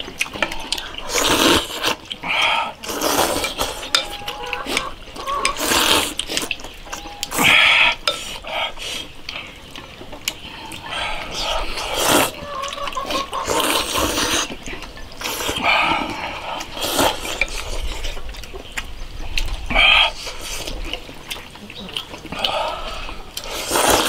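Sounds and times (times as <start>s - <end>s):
slurping noodle soup: 0.2s - 24.0s
chopsticks and bowls clinking: 2.8s - 8.4s.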